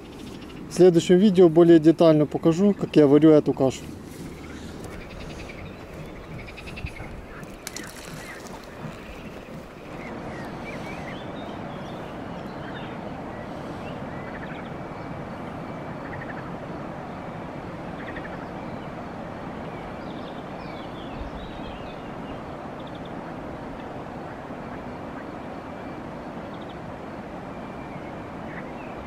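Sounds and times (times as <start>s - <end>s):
small birds chirping: 0.0s - 16.5s
steady low rush: 0.0s - 18.0s.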